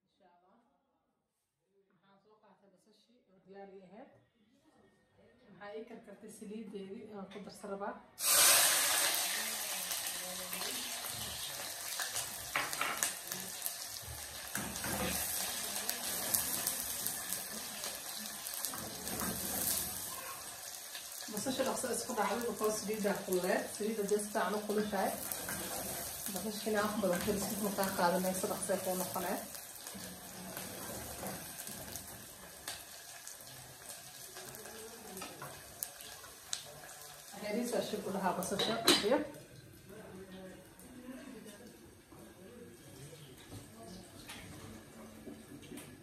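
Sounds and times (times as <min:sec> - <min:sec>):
onions sizzling in hot oil: 0:08.2 - 0:39.9
wooden spoon scraping a pot: 0:18.6 - 0:20.5, 0:24.8 - 0:32.4.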